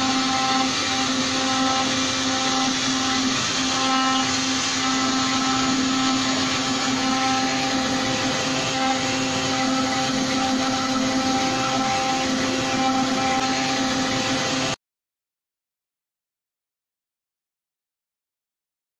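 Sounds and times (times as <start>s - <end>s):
router spindle humming: 0.0s - 14.8s.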